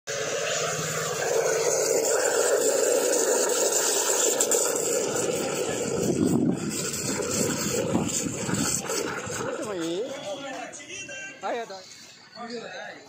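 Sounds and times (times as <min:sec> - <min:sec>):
steam wand hissing into milk: 0:00.1 - 0:10.0.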